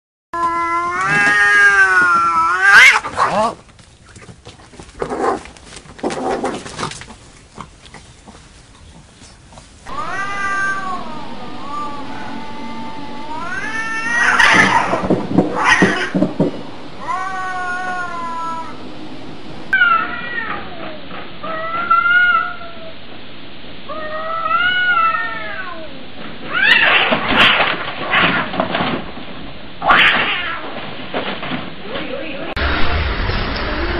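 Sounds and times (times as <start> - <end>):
cats yowling and screeching: 0.4 - 3.5, 9.9 - 16.4, 17.0 - 18.8, 19.7 - 22.9, 23.9 - 27.2, 29.8 - 30.7.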